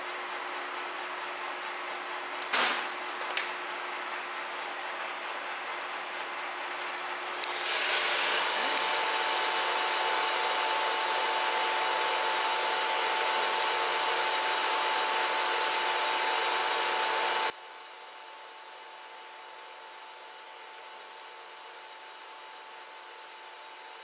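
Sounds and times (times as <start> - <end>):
lathe cutting metal: 7.4 - 17.5.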